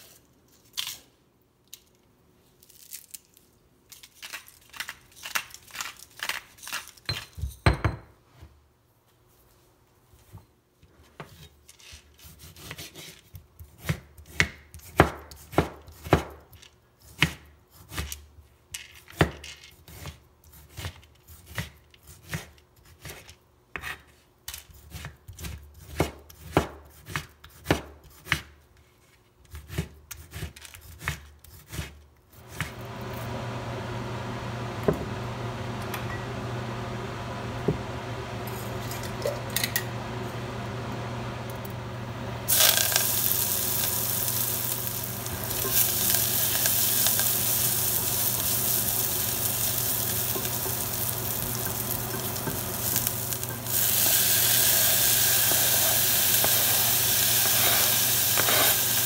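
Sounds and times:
knife chopping on plastic board: 13.7s - 16.4s, 25.0s - 28.5s
oil hissing in a saucepan: 42.4s - 59.0s
mustard seeds popping: 42.5s - 59.0s.

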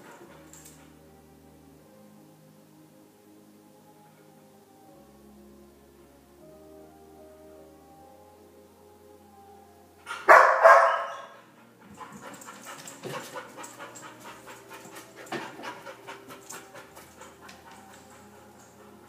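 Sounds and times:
dog barking loudly: 10.1s - 11.4s
dog panting rapidly: 11.4s - 19.0s.

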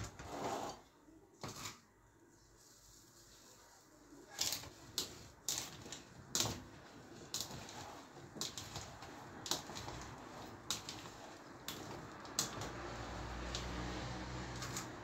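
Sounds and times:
soft handling rustle: 1.4s - 12.4s.

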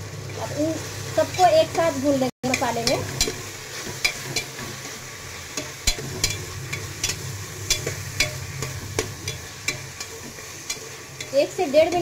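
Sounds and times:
oil sizzling: 0.0s - 12.0s
metal spatula scraping pot: 2.5s - 12.0s.

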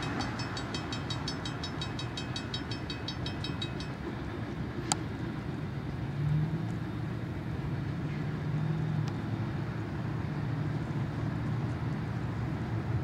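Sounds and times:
cars driving past: 0.0s - 13.0s.

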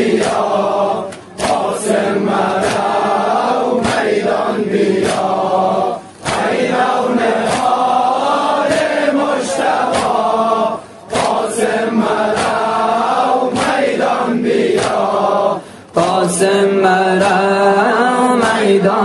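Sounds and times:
steady beat: 0.0s - 15.2s
men chanting a lament: 0.0s - 19.0s.

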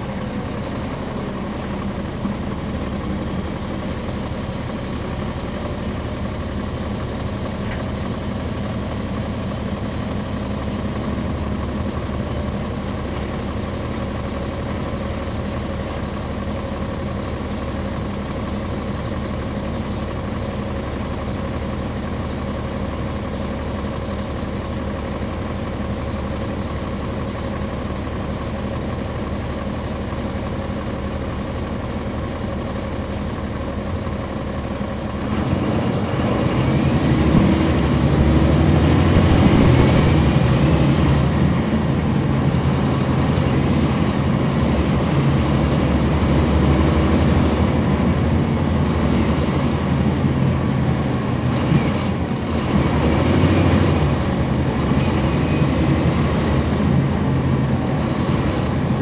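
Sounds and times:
bus diesel engine running: 0.0s - 59.0s
transmission whine: 35.4s - 43.5s.

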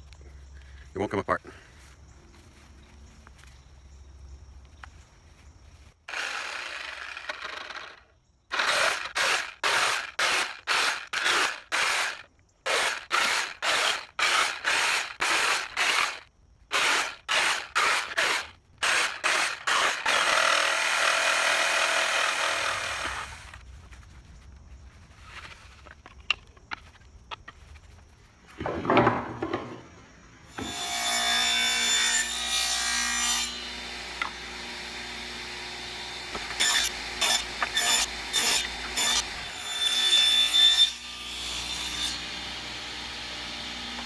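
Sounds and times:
reciprocating saw cutting wood: 6.1s - 23.6s, 30.6s - 44.0s.

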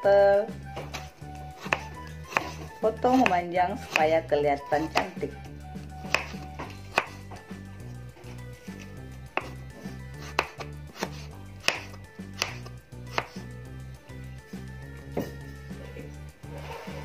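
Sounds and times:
knife striking cutting board: 0.8s - 4.1s, 4.8s - 5.2s, 6.0s - 7.5s, 8.6s - 13.5s.

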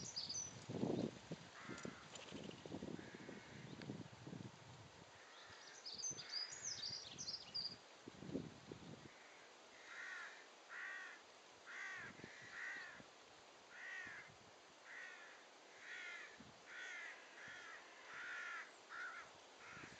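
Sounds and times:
crow cawing: 1.6s - 2.1s, 3.0s - 3.7s, 9.1s - 13.0s, 13.7s - 19.9s.

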